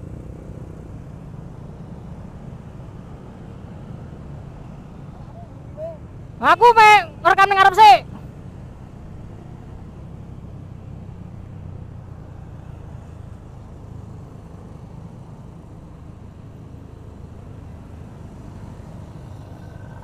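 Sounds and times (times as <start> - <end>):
road noise: 0.0 - 20.0
motorcycle engine drone: 8.0 - 20.0.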